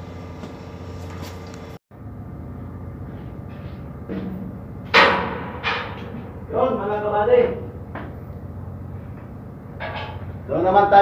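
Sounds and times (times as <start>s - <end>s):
ship machinery humming: 0.0s - 11.0s
sharp loud knock: 4.2s - 6.2s.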